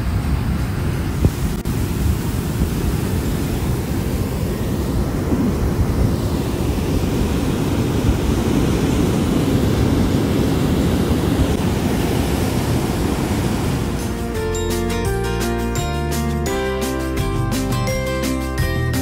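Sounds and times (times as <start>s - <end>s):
wind rumbling on microphone: 0.0s - 14.4s
ocean surf breaking on sand: 0.0s - 14.5s.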